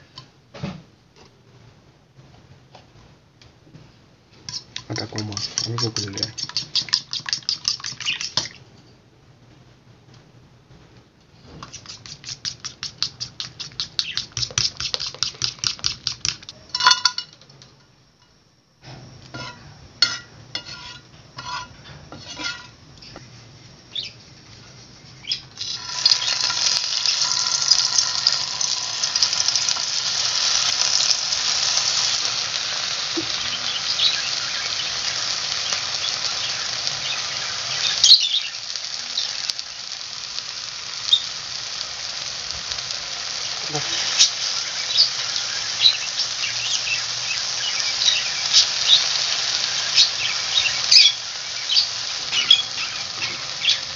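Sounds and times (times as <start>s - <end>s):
tomatoes sizzling in hot oil: 4.3s - 8.6s, 11.4s - 17.4s, 18.9s - 23.2s, 23.9s - 53.9s
fork beating batter in plate: 4.5s - 8.6s, 11.6s - 16.6s
tomatoes laid into frying pan: 11.6s - 23.2s, 25.3s - 53.8s.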